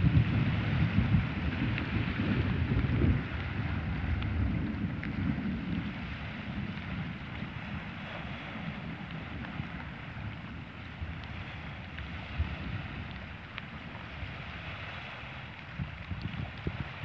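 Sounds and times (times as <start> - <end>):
faint sea water wash: 0.0 - 17.0
wind buffeting microphone: 0.0 - 17.0.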